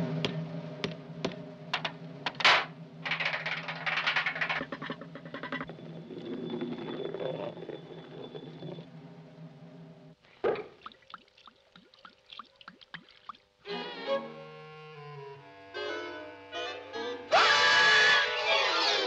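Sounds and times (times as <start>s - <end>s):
bottle rattling down a drainpipe: 1.8s - 7.8s.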